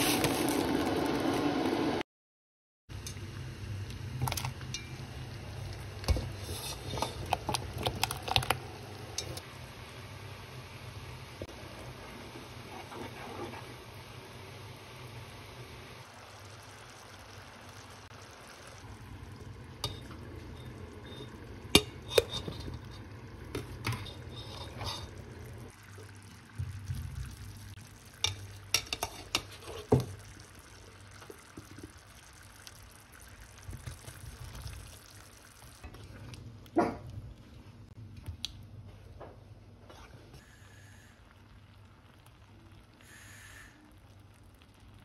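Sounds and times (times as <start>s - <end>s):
liquid stirred and poured: 5.5s - 9.4s, 18.2s - 36.5s
utensil clinking against pot: 19.8s - 23.0s.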